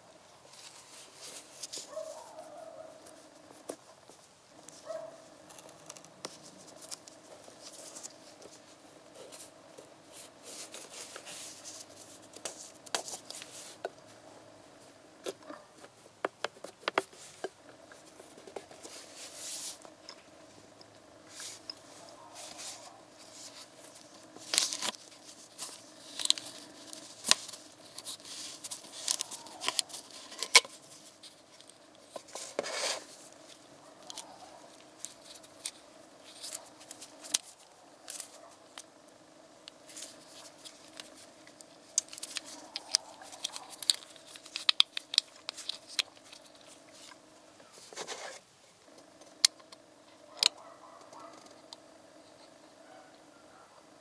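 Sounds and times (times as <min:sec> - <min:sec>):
faint steady hum: 0:00.0 - 0:54.0
gloved fingers rubbing: 0:21.2 - 0:38.9.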